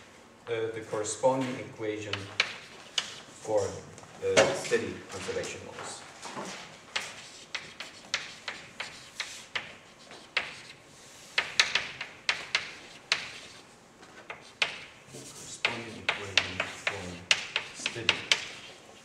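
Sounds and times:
chalk tapping and scratching: 2.0 - 3.7, 6.4 - 19.0.

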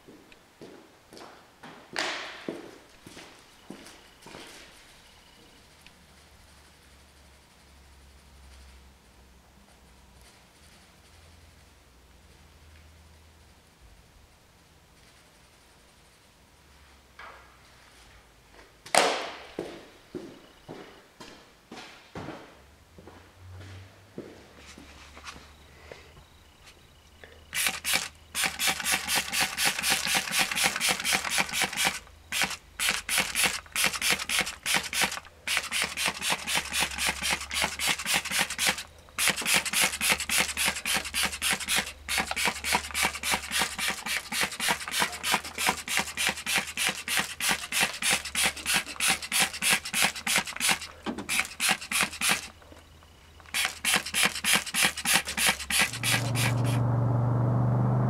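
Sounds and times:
trigger spray bottle spraying: 27.5 - 52.5, 53.4 - 56.8.

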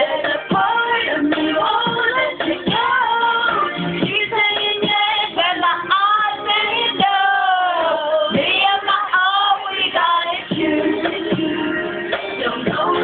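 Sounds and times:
two women singing: 0.0 - 13.0.

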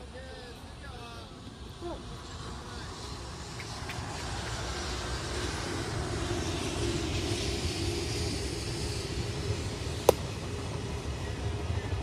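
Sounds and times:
steady outdoor rumble: 0.0 - 12.0
sharp crack: 10.1 - 10.3.

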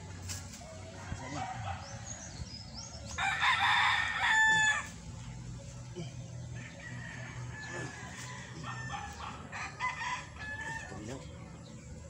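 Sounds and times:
rooster crowing: 3.2 - 4.9, 6.6 - 11.0.

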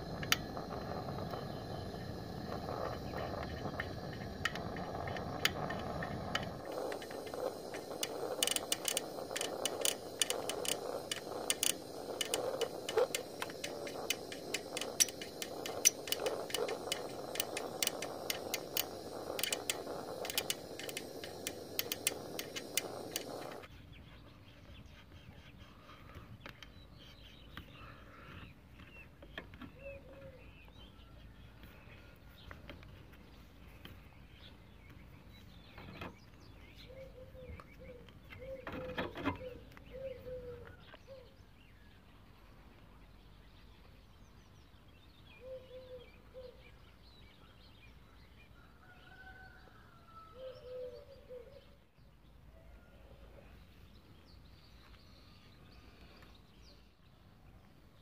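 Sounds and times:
wrench clicking and scraping on metal: 2.2 - 23.7
faint bird chirps: 44.6 - 51.8.

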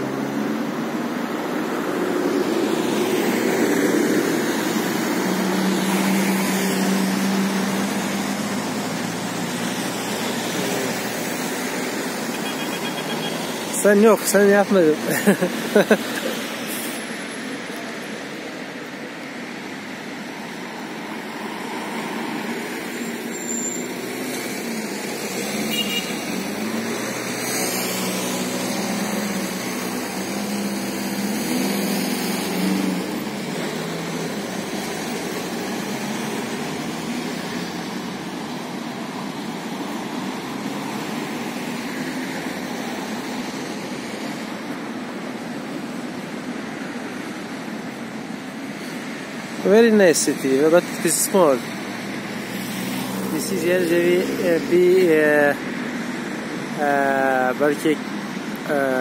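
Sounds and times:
road traffic noise: 0.0 - 59.0.

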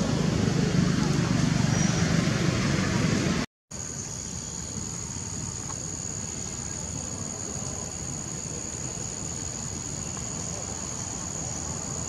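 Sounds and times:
insects droning: 3.7 - 12.0.

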